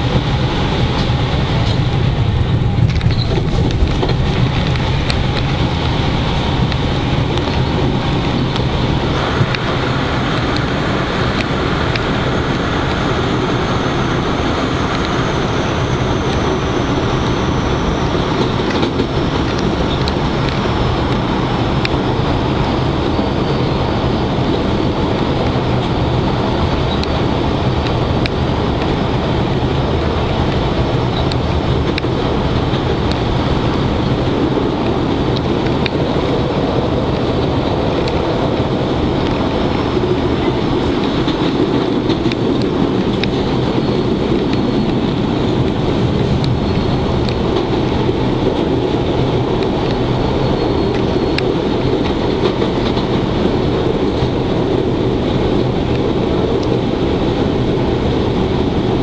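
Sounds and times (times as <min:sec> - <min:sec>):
train wheels rumbling on rails: 0:00.0 - 0:59.0
faint high whine: 0:09.1 - 0:21.2.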